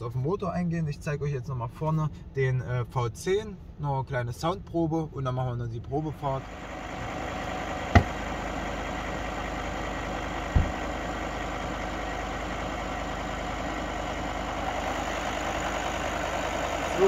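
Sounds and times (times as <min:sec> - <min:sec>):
diesel engine idling: 0:00.0 - 0:17.0
dull thump: 0:07.9 - 0:08.2, 0:10.5 - 0:10.8.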